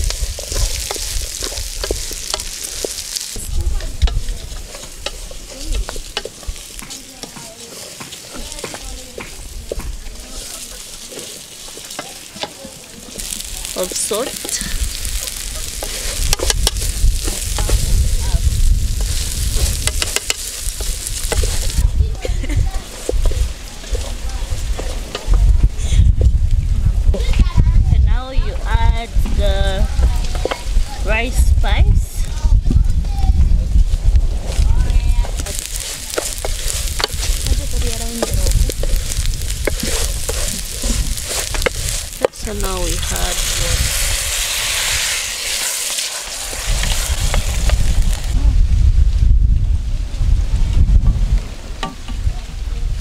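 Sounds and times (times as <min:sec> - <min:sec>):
wooden spoon scraping a pot: 0:00.0 - 0:21.8, 0:22.4 - 0:25.4, 0:34.3 - 0:48.3
food sizzling in a pan: 0:00.0 - 0:26.3, 0:27.0 - 0:48.5.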